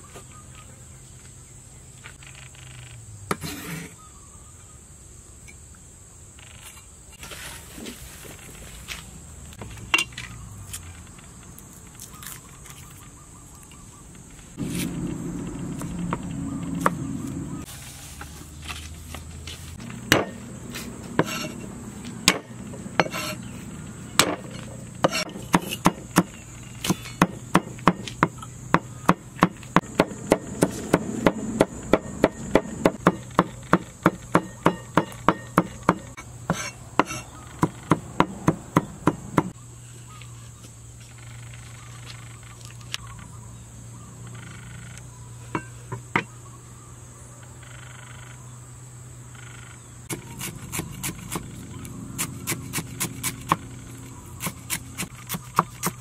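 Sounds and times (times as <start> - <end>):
knife chopping on wooden board: 22.3 - 23.4, 24.2 - 39.5, 54.4 - 56.0.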